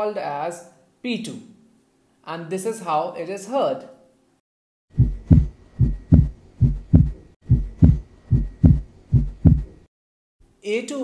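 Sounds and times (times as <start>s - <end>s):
heartbeat through stethoscope: 4.9s - 9.9s.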